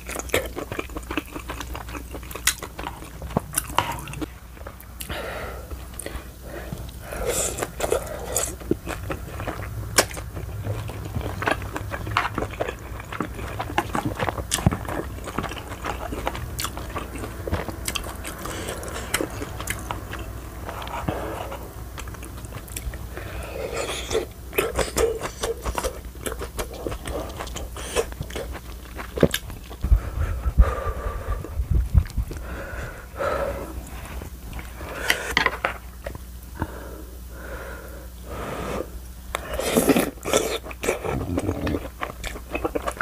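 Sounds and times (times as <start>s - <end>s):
wet chewing with mouth clicks: 0.0s - 29.9s, 31.4s - 32.5s, 39.0s - 43.0s
dull low thumps: 29.8s - 32.4s.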